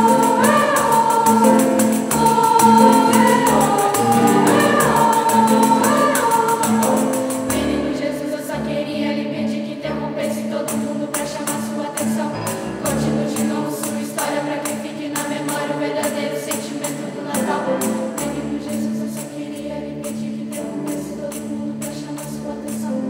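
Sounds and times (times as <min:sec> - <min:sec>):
tambourine beat: 0:00.0 - 0:08.1
youth choir singing: 0:00.0 - 0:23.0.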